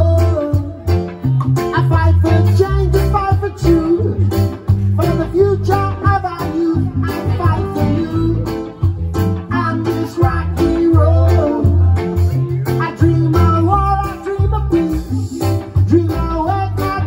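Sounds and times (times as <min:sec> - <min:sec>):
bass line: 0:00.0 - 0:17.0
guitar: 0:00.0 - 0:17.0
live band playing: 0:00.0 - 0:17.0.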